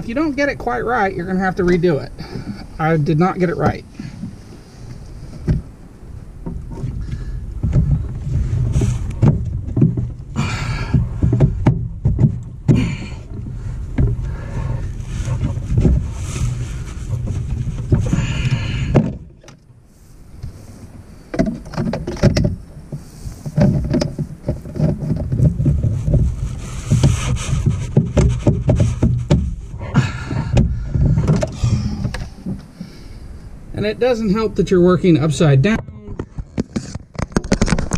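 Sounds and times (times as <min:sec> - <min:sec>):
plastic scraping and clicking: 0:21.3 - 0:29.6, 0:30.3 - 0:33.0, 0:35.7 - 0:37.9
low rumble: 0:24.2 - 0:36.5.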